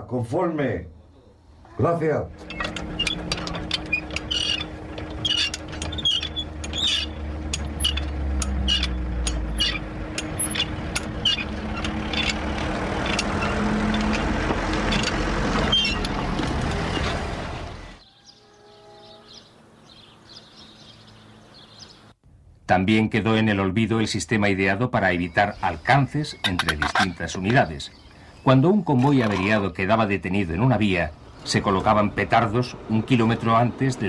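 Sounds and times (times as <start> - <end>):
faint outdoor background: 0.0 - 34.0
car engine running: 2.3 - 18.0
winch clicking: 2.4 - 17.6.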